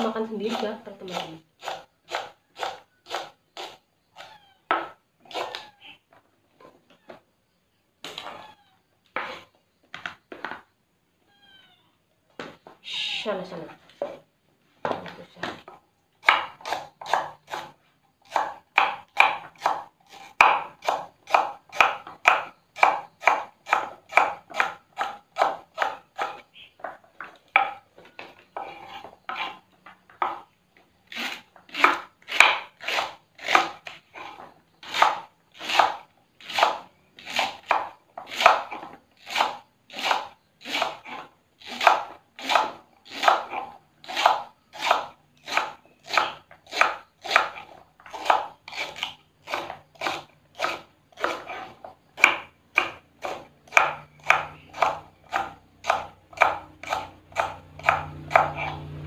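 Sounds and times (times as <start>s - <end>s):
knife chopping on wooden board: 0.4s - 3.8s, 14.8s - 26.4s, 27.3s - 27.8s, 31.2s - 59.0s.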